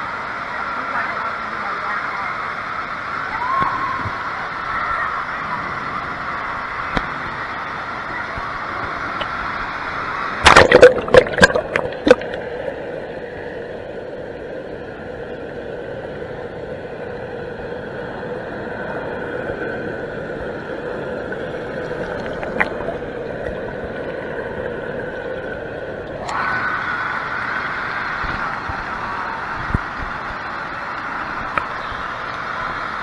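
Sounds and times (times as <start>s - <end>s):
underwater hum and rush: 0.0s - 33.0s
water splashing: 8.4s - 12.9s, 21.3s - 26.7s.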